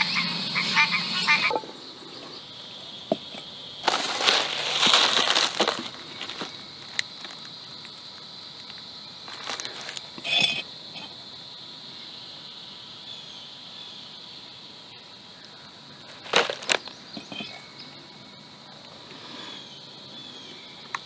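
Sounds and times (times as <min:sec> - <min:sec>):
high-pitched drone: 0:00.0 - 0:01.8
food pouch crinkling: 0:03.8 - 0:07.5, 0:09.3 - 0:10.1, 0:16.1 - 0:16.9.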